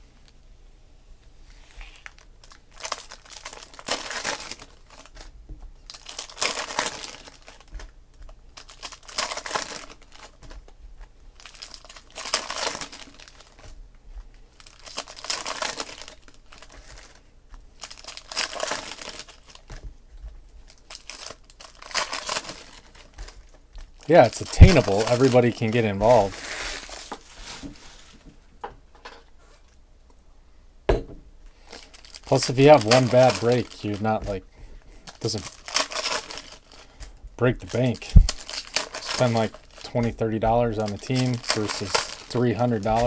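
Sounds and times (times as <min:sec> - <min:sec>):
foil wrappers crinkling and tearing: 0:01.6 - 0:28.2, 0:31.6 - 0:43.0.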